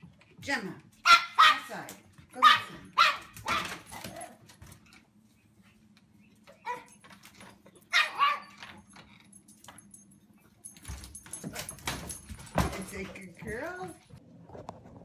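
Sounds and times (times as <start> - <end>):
dog barking: 1.0 - 1.7, 2.4 - 3.8, 7.9 - 8.6.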